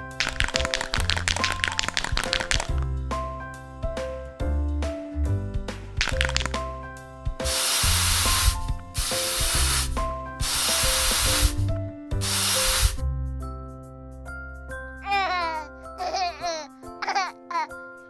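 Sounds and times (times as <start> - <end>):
background music: 0.0 - 18.0
aerosol can spraying foam: 7.4 - 13.0.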